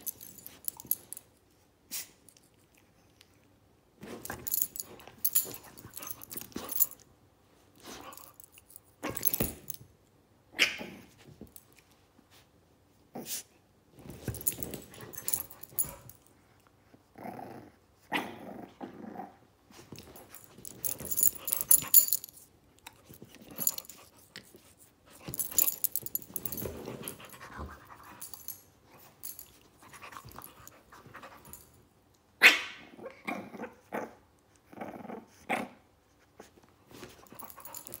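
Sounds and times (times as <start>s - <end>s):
dogs play growling: 4.0s - 7.0s, 16.9s - 22.3s, 25.3s - 31.7s, 32.9s - 35.9s.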